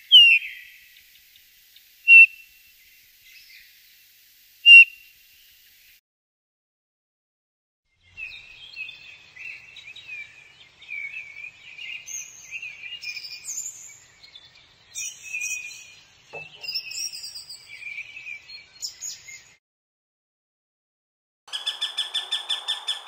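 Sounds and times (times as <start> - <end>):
kingfisher shrill whistled calls: 0.0 - 0.7, 2.1 - 2.4, 4.7 - 5.0.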